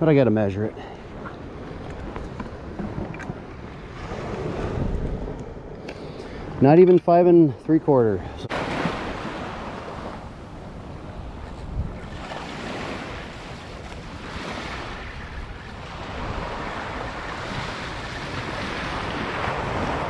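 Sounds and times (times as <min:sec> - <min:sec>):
wind rumbling on microphone: 0:00.7 - 0:07.0, 0:08.2 - 0:20.0
small waves breaking on beach: 0:08.5 - 0:20.0.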